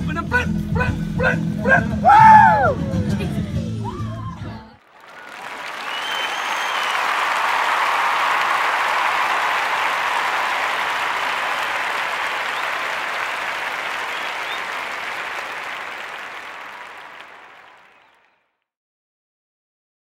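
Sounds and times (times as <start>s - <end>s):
crowd applause: 4.8s - 18.4s.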